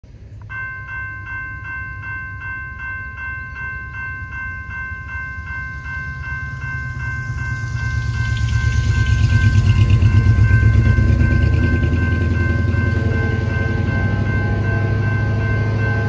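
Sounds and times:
railroad crossing bell ringing: 0.1s - 16.0s
low rumble: 4.7s - 16.0s.

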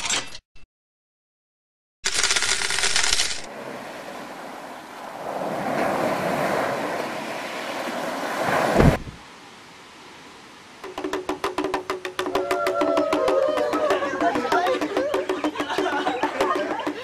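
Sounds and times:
rapid clicking rattle: 2.1s - 3.5s
surf-like whoosh: 3.5s - 10.6s.

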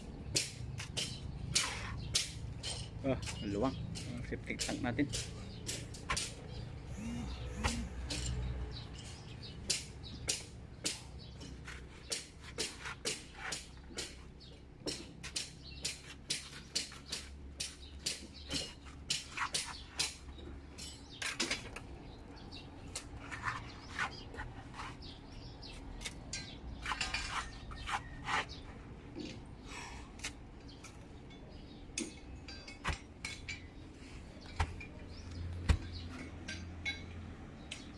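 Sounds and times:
trowel clinking on concrete blocks: 26.0s - 28.6s, 30.2s - 33.8s, 34.4s - 37.9s.

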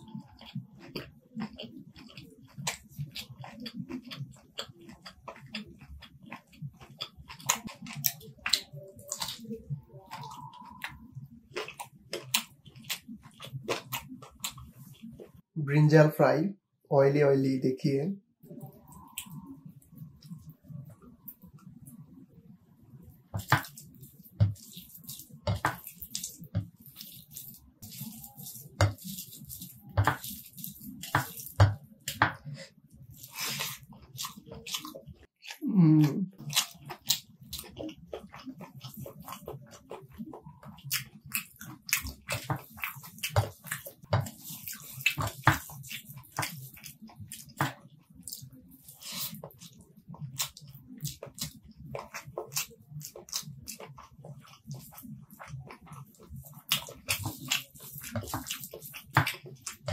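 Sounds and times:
wet open-mouthed chewing: 0.0s - 15.4s, 18.5s - 22.0s, 23.1s - 59.9s
lip smacks: 18.6s - 19.6s
person humming: 35.6s - 36.3s.

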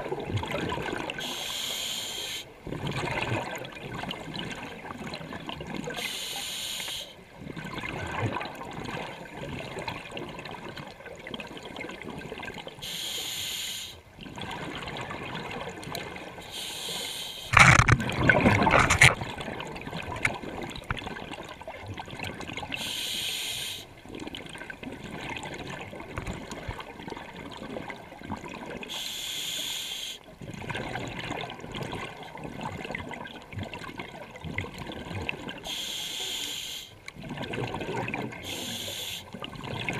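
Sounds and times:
regulator inhalation hiss: 1.2s - 2.5s, 6.0s - 7.1s, 12.8s - 14.0s, 16.5s - 17.5s, 22.8s - 23.9s, 28.9s - 30.2s, 35.7s - 36.9s, 38.5s - 39.3s
bubbling exhale: 35.6s - 39.4s.

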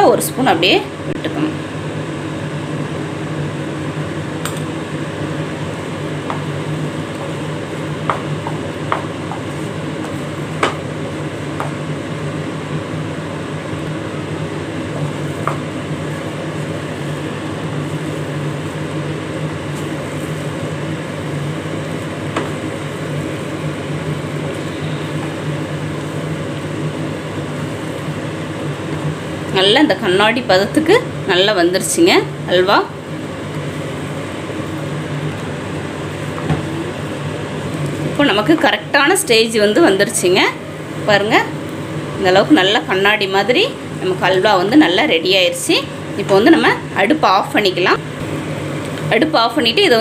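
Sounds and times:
steady mechanical hum: 0.0s - 50.0s.

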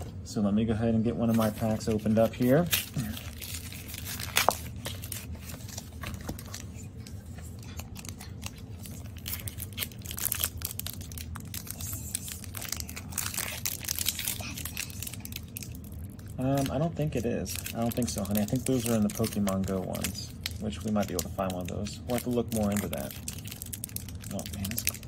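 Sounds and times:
foil wrapper crinkling and tearing: 1.4s - 25.0s.

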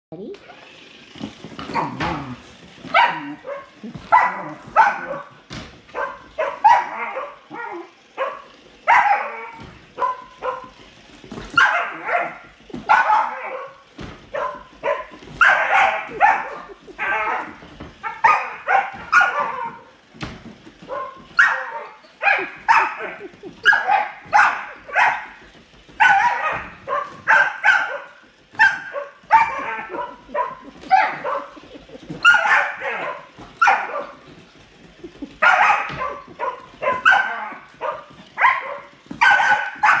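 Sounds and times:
puppy yipping and barking: 6.0s - 10.8s, 11.5s - 19.9s, 20.9s - 25.4s, 26.0s - 34.2s, 35.4s - 40.0s.

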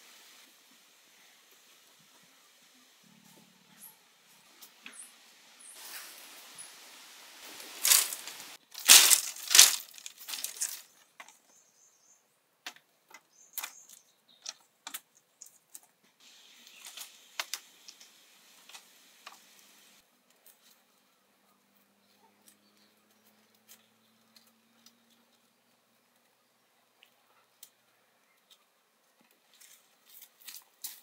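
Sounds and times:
bamboo strips rustling and crackling: 5.7s - 11.5s, 12.6s - 31.0s.

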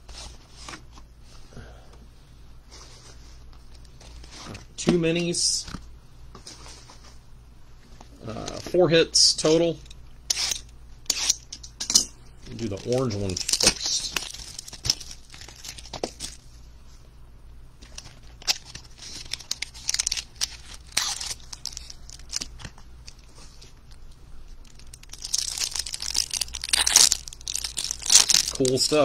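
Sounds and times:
plastic wrapping crinkling and tearing: 12.5s - 16.5s, 17.8s - 29.0s.

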